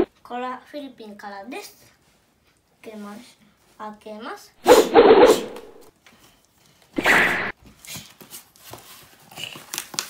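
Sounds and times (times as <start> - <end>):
packing tape ripped off box: 7.0 - 10.0
cardboard and paper rustling: 7.6 - 10.0.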